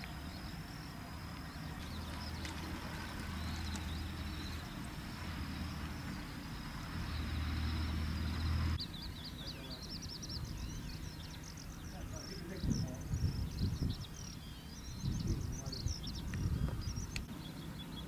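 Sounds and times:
steady low rumble: 0.0s - 17.4s.

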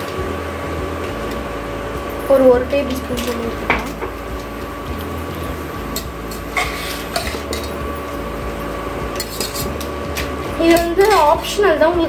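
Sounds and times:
low hum: 0.0s - 12.0s
spatula scraping metal pot: 5.4s - 8.2s, 9.0s - 11.7s.

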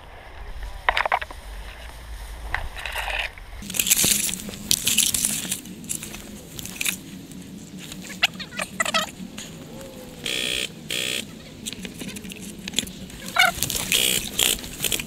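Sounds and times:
grass and reeds rustling: 0.0s - 15.0s
stalks snapping: 3.6s - 7.1s, 11.6s - 15.0s.

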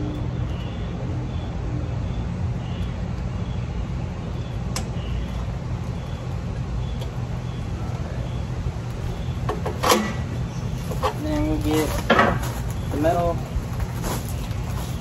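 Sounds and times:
steady low drone: 0.0s - 9.5s.

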